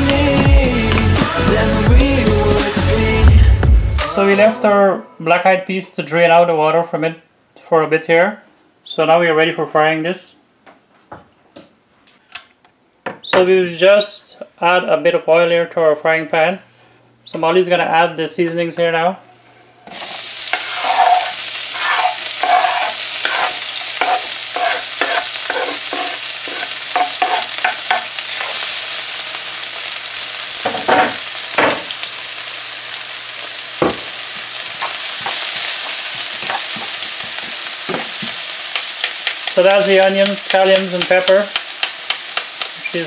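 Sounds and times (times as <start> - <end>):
spoon scraping a pan: 19.8 - 28.8, 34.8 - 43.0
vegetables sizzling in oil: 19.8 - 43.0.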